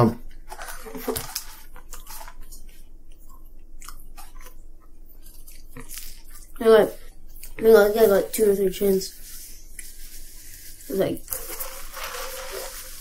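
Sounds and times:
people chewing and biting food: 0.3s - 7.6s.

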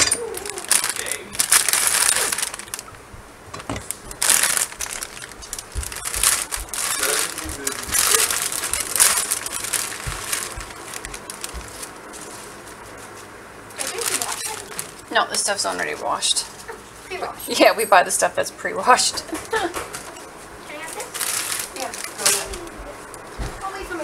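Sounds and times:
plastic bag crinkling: 0.1s - 3.0s, 3.6s - 16.0s, 20.8s - 22.7s.

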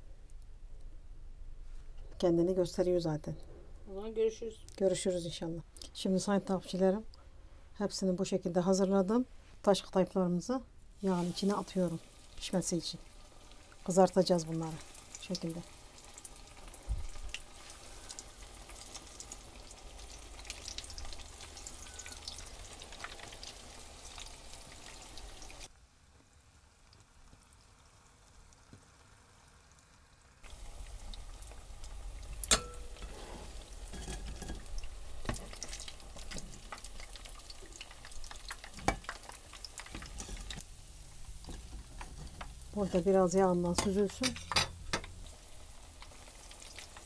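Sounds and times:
deep-frying in hot oil: 10.0s - 47.0s
fork and spoon clicking on pan: 32.4s - 33.1s.

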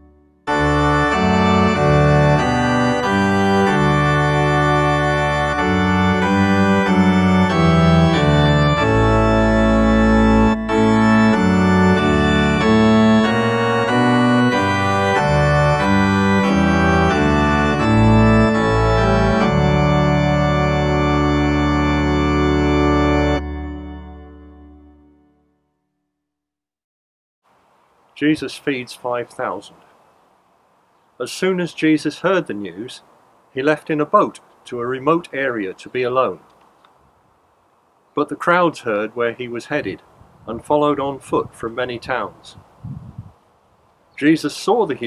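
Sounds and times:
organ playing hymn chords: 0.0s - 25.7s.

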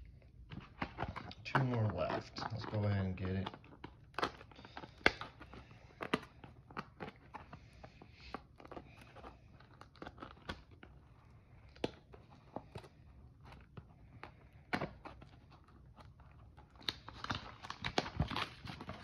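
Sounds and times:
plastic wrap tearing and crinkling: 0.6s - 7.5s, 14.8s - 19.0s.

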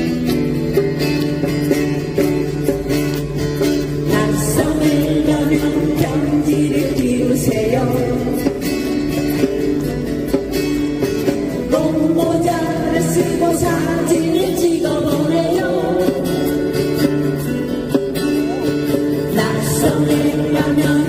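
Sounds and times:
acoustic guitars strumming: 0.0s - 21.0s
group singing: 4.1s - 8.6s, 11.7s - 16.7s, 19.2s - 21.0s.

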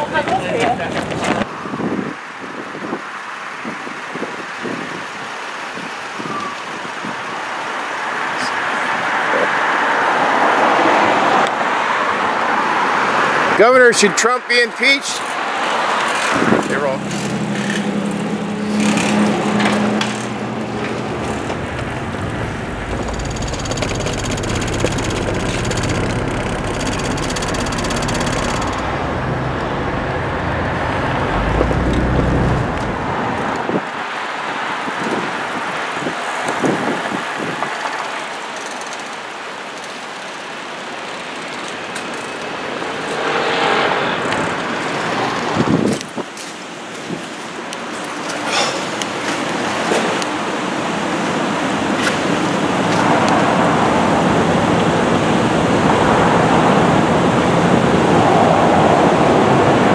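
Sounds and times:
cars driving past: 15.0s - 46.0s, 48.2s - 59.9s
low rumble: 21.2s - 33.5s.

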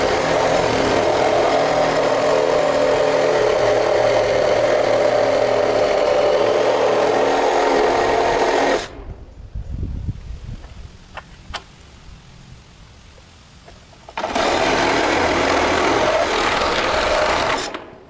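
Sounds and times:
cordless drill running: 0.0s - 9.0s, 14.2s - 17.9s.

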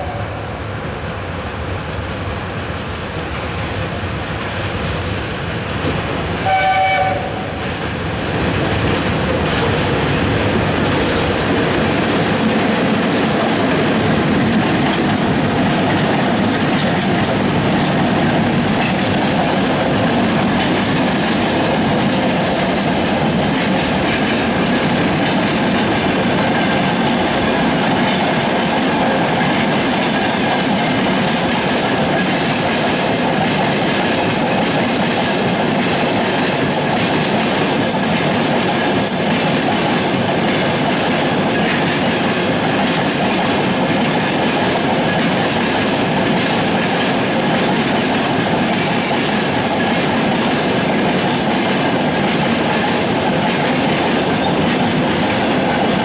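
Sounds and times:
locomotive horn blast: 0.0s - 0.5s, 6.4s - 7.6s
freight train wheels on rails: 0.0s - 56.0s.

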